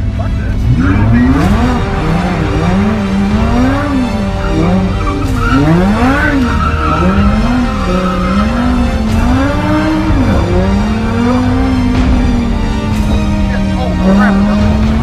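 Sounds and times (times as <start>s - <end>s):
car engine revving: 0.0s - 15.0s
tyres squealing: 0.7s - 10.5s.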